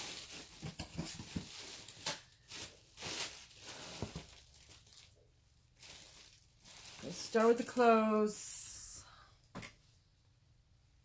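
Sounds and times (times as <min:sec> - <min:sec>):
clothes and packaging rustling: 0:00.0 - 0:08.3.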